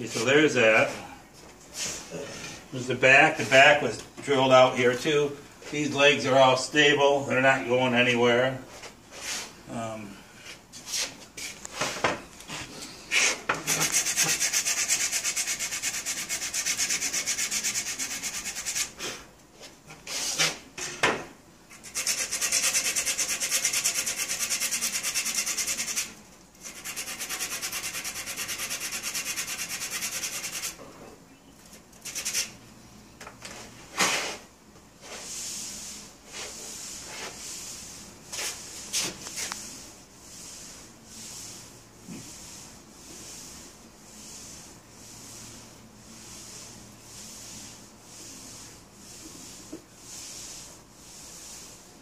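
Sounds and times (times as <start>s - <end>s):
abrasive rubbing on wood: 13.1s - 20.7s, 21.7s - 31.0s, 31.8s - 32.6s, 35.0s - 51.9s.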